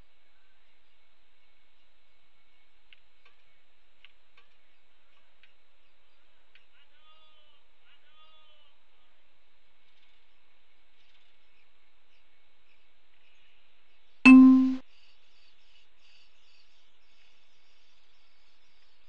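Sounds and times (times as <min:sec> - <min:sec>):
high bird chirping: 0:14.3 - 0:14.8.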